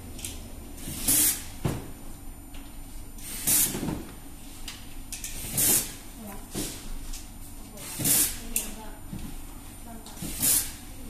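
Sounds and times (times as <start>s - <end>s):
sharp hissing bursts: 10.3s - 10.9s.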